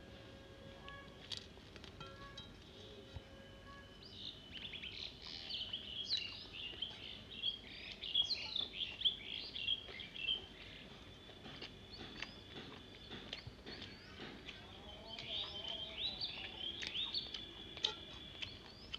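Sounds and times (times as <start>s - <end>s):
bird chirping and twittering: 3.8s - 18.9s.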